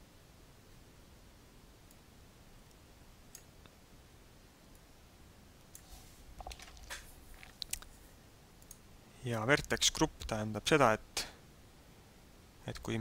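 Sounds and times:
computer mouse clicks: 8.6 - 8.8.

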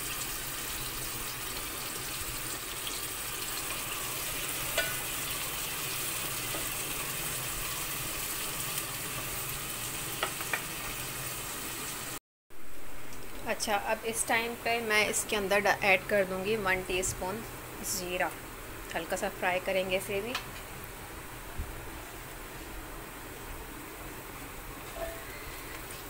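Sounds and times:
onions sizzling in hot oil: 0.0 - 12.2.

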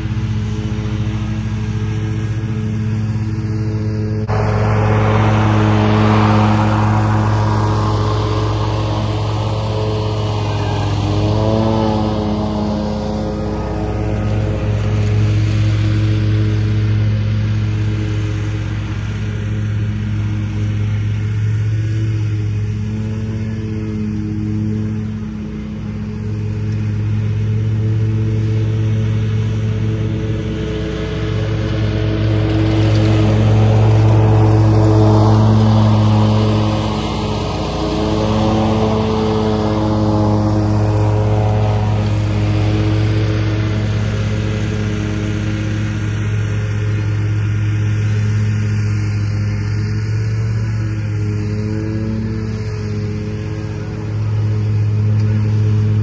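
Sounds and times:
mower engine running: 0.0 - 56.0.

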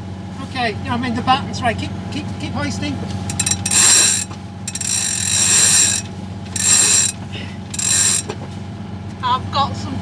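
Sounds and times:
boat engine idling hum: 0.0 - 10.0
winch pawls clicking: 3.3 - 8.4.

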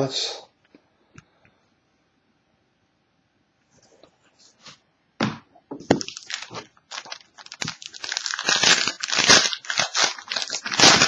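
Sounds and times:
foil wrapper crinkling: 5.9 - 11.0.

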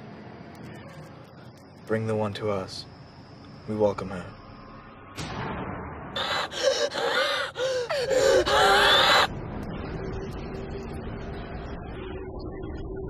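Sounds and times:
woman gasping and crying out: 6.2 - 9.3
low steady drone: 7.6 - 13.0.

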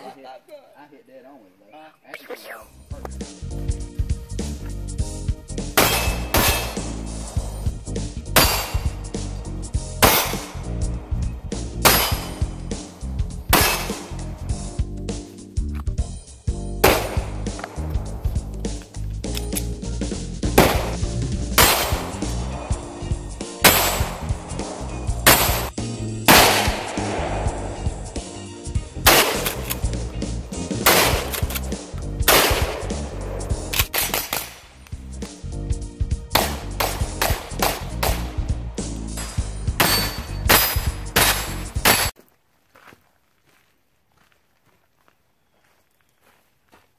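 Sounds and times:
background music: 2.2 - 42.1
loud sharp hits: 5.7 - 7.1, 8.2 - 9.3, 10.0 - 10.7, 11.6 - 14.4, 20.5 - 22.4, 23.4 - 28.2, 30.7 - 31.6, 32.2 - 33.2
gunshots: 5.8 - 7.0, 8.4 - 9.0, 10.0 - 10.6, 11.8 - 12.6, 13.5 - 14.2, 16.8 - 18.0, 20.5 - 22.4, 23.5 - 27.9, 29.0 - 29.9, 30.7 - 34.7, 36.3 - 38.4, 39.2 - 42.2.

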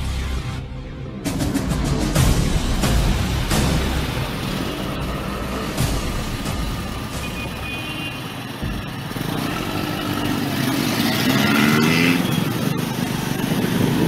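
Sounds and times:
motorcycle engine accelerating: 8.4 - 14.0.

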